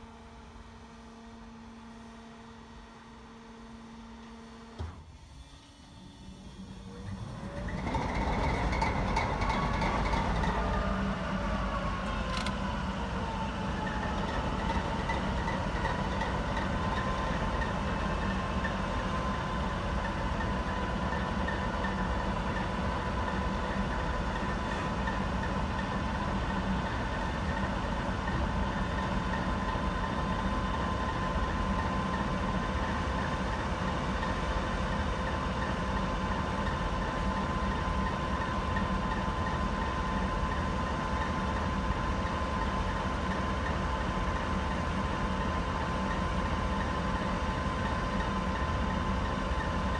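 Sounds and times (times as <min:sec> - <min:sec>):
engine whine: 0:00.0 - 0:49.6
diesel locomotive engine idling: 0:06.3 - 0:49.9.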